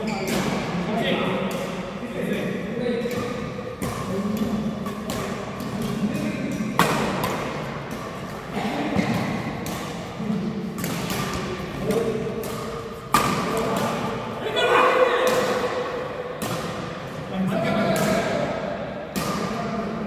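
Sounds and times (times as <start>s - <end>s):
rackets hitting shuttlecock: 0.0s - 19.8s.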